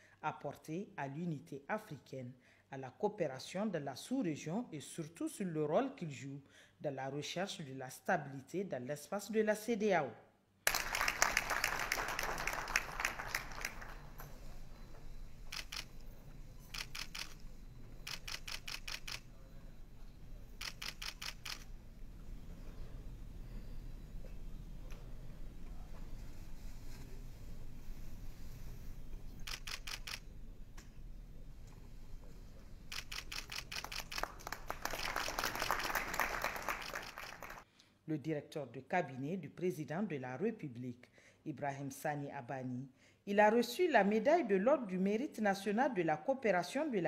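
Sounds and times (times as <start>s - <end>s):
applause: 10.7s - 14.3s, 33.8s - 37.6s
camera shutters clicking: 15.5s - 16.0s, 16.7s - 17.4s, 18.0s - 19.2s, 20.6s - 21.7s, 29.4s - 30.2s, 32.9s - 35.6s.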